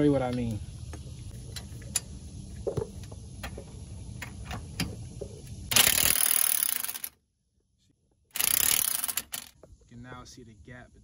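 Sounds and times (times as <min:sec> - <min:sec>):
wrench clicking on nut: 0:08.4 - 0:09.5.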